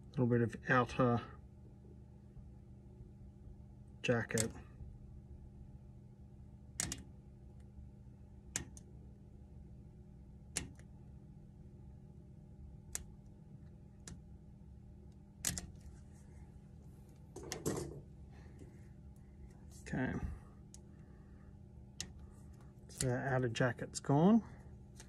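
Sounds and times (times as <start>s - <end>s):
steady low hum: 0.0s - 25.0s
plastic clicks and snaps: 4.3s - 4.6s, 6.8s - 7.1s, 8.5s - 8.9s, 10.5s - 10.9s, 15.4s - 15.8s.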